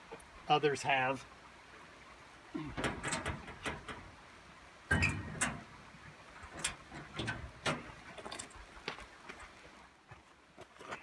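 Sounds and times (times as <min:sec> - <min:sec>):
sheet metal clicks and clanks: 0:02.7 - 0:04.2, 0:04.9 - 0:05.8, 0:06.4 - 0:08.5.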